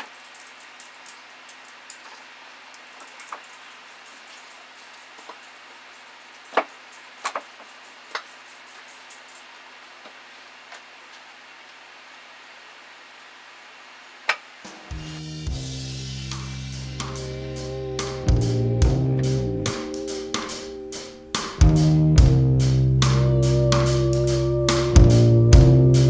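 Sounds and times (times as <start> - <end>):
faint steady hiss: 0.0 - 26.0.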